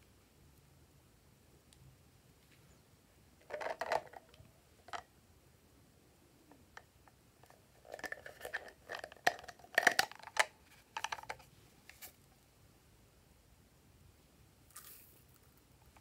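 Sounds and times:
filling rustling into hand: 14.7s - 15.6s.

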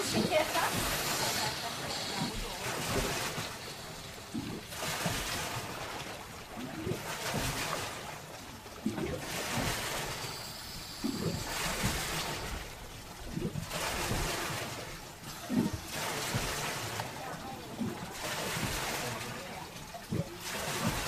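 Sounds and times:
faint voices: 0.0s - 4.6s, 16.5s - 21.0s
sea water washing in: 0.0s - 21.0s.

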